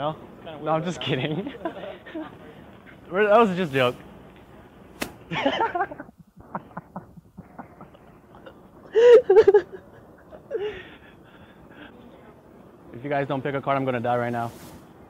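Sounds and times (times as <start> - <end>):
man laughing: 5.3 - 11.2.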